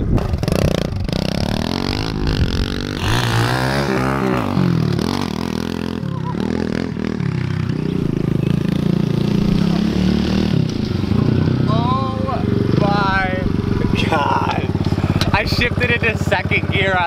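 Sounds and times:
motorbike engine revving: 0.0s - 17.0s.

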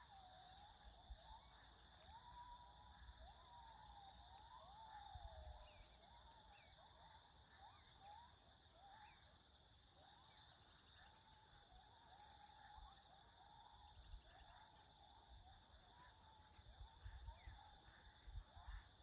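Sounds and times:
birds whistling: 4.7s - 6.9s, 7.6s - 9.4s.

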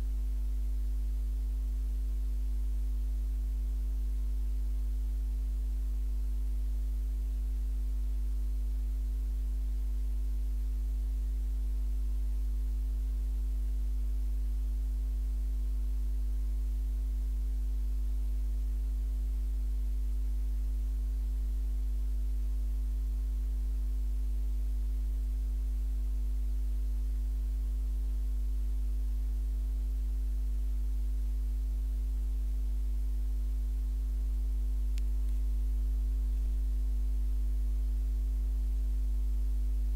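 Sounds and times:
low electrical hum: 0.0s - 39.9s.

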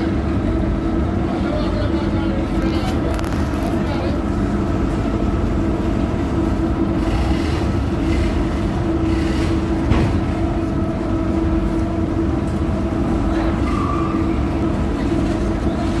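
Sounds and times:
diesel machinery rumbling: 0.0s - 16.0s.

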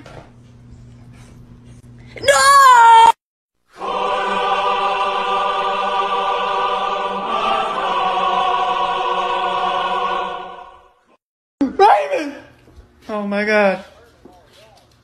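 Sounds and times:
choir singing held chord: 3.7s - 11.2s.

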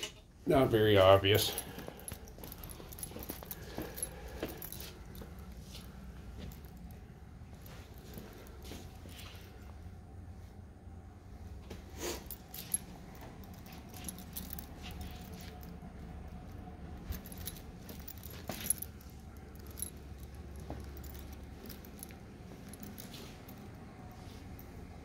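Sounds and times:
low steady hum: 0.0s - 25.0s
jingling and clicking: 0.6s - 9.7s, 12.2s - 25.0s.

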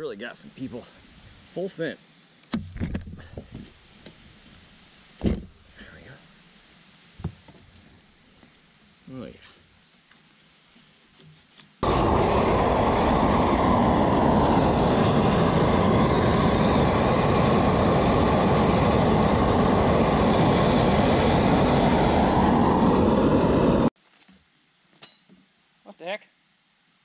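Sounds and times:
gas torch flame rushing: 11.8s - 24.0s.

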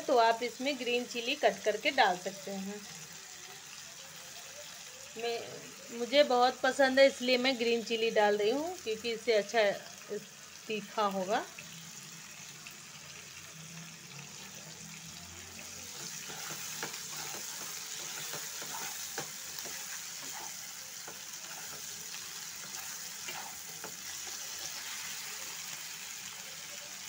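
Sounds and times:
vegetables sizzling in oil: 0.0s - 27.0s
wooden spatula scraping a pan: 15.9s - 24.8s.

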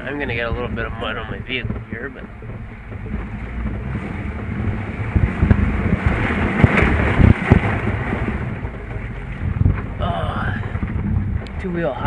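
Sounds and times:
vehicle engine and tyres rumbling: 0.0s - 12.0s
vehicle body bumps and knocks: 1.4s - 10.0s, 10.6s - 11.5s.

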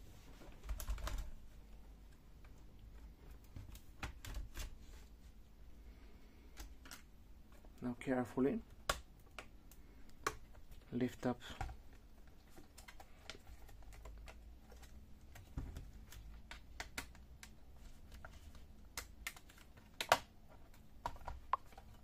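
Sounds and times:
plastic clips clicking loose: 18.9s - 20.3s.

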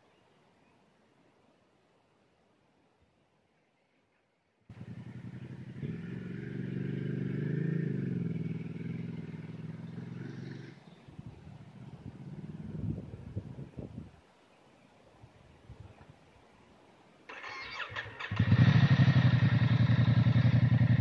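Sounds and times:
dirt bike engine running: 18.3s - 21.0s.

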